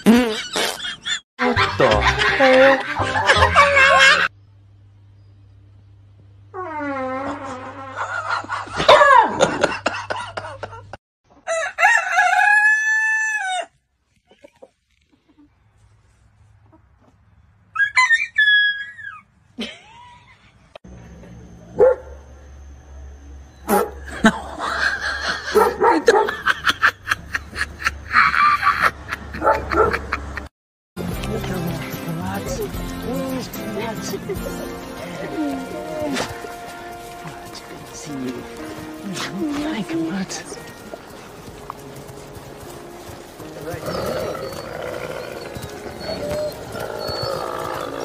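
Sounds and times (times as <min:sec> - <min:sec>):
person laughing: 0:00.0 - 0:04.3, 0:07.9 - 0:11.0, 0:19.6 - 0:20.5, 0:24.1 - 0:30.5
rooster crowing: 0:11.4 - 0:13.7
large dog barking: 0:21.8 - 0:22.2, 0:25.5 - 0:26.4.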